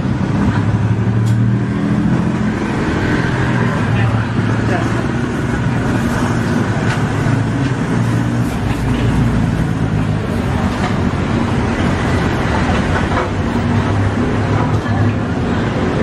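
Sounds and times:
street traffic rumble: 0.0 - 16.0.

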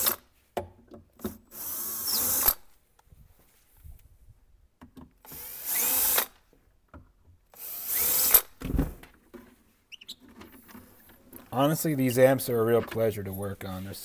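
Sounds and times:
cordless drill running: 1.5 - 2.6, 5.3 - 6.4, 7.6 - 8.6
dull thump: 8.6 - 9.1.

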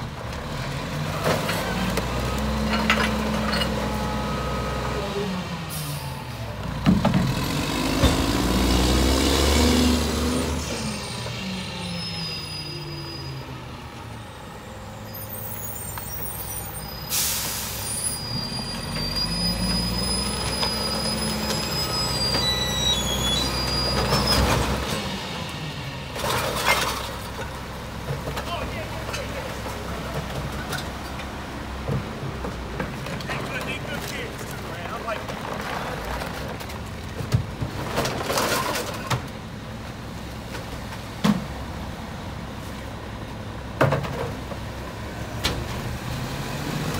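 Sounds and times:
garbage truck diesel engine revving: 6.6 - 11.7
air brake hissing: 15.5 - 18.0.

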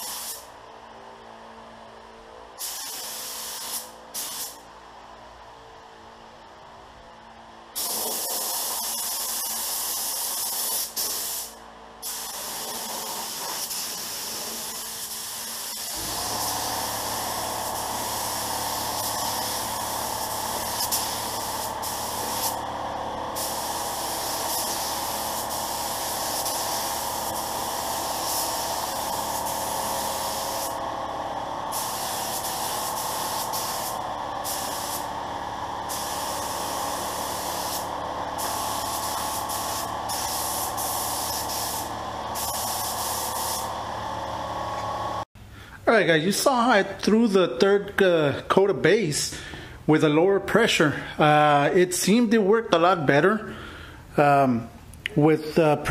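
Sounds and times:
spray gun hissing: 0.0 - 0.5, 2.6 - 4.6, 7.8 - 30.9, 31.6 - 45.2.

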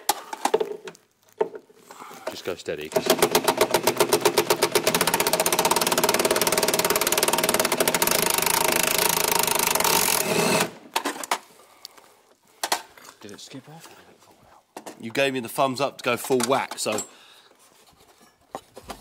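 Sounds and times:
impact driver hammering on bolt: 2.9 - 10.6.

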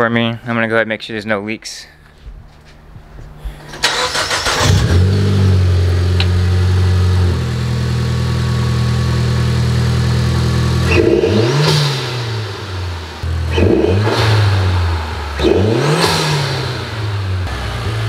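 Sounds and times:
car engine idling: 3.8 - 18.0
engine revving: 3.8 - 18.0.

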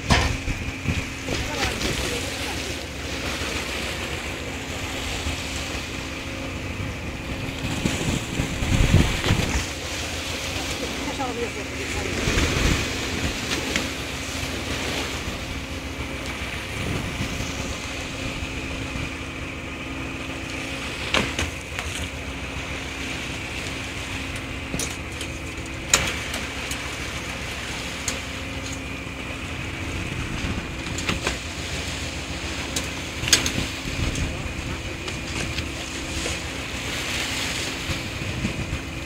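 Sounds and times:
boat engine humming: 0.0 - 39.0.

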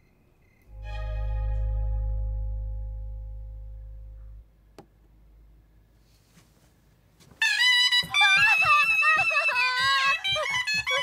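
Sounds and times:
double-reed horn melody: 0.7 - 4.5.

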